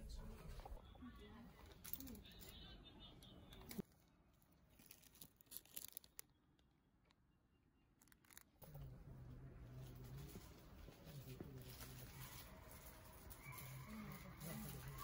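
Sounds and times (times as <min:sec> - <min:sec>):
cellophane crinkling: 0:03.7 - 0:06.3, 0:11.2 - 0:15.0.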